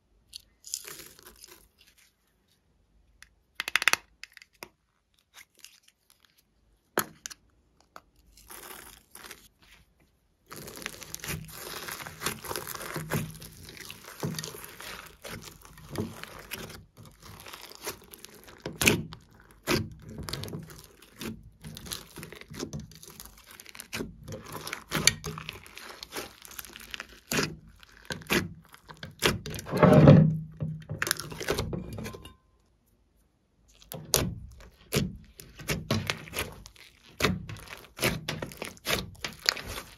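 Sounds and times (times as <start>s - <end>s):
slime squished by hand: 10.4s - 29.7s, 33.7s - 39.9s.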